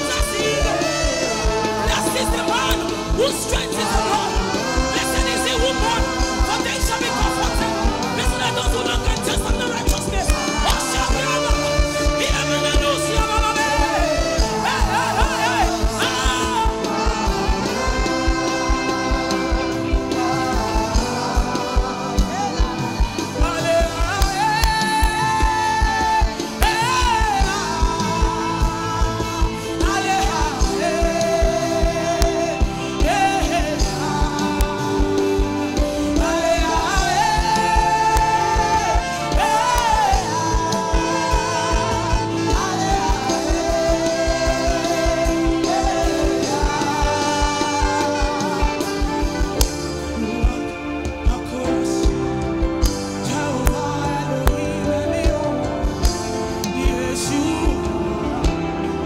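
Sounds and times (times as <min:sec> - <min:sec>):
band sustained chords: 0:00.0 - 0:59.0
group of singers singing: 0:00.0 - 0:59.0
steady drum beat: 0:00.0 - 0:59.0.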